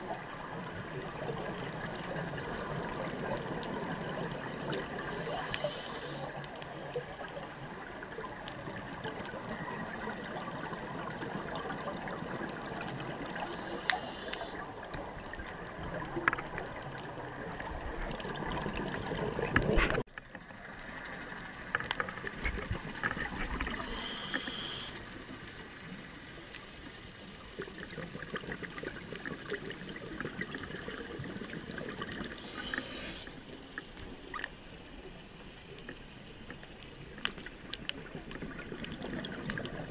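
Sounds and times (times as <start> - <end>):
regulator hissing inhale: 5.0 - 6.4, 13.4 - 14.7, 23.7 - 25.1, 32.4 - 33.4.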